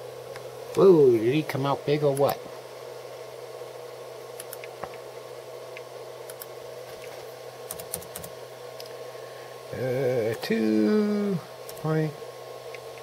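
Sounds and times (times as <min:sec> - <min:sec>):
steady low hum: 0:00.0 - 0:13.0
laptop keyboard keystrokes: 0:07.7 - 0:08.3.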